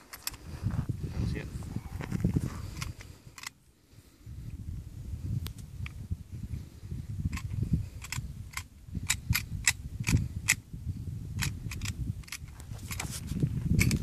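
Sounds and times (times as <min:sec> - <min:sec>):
wind rumble on microphone: 0:00.0 - 0:14.0
gun clicks: 0:00.1 - 0:00.4, 0:02.7 - 0:03.6, 0:07.3 - 0:10.6, 0:11.4 - 0:13.0.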